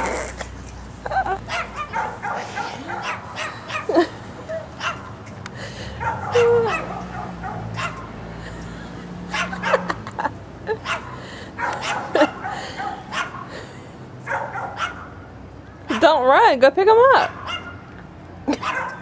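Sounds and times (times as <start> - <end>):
small dog barking: 1.5 - 4.0, 6.0 - 8.1, 10.8 - 13.4, 14.3 - 15.1, 17.3 - 17.8, 18.6 - 19.0.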